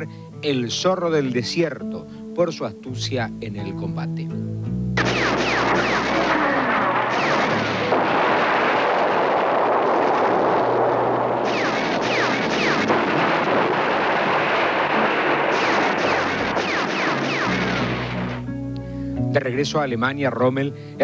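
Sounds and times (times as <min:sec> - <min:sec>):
artillery and gunfire: 0:05.0 - 0:18.5
sharp blasts: 0:05.0 - 0:18.5.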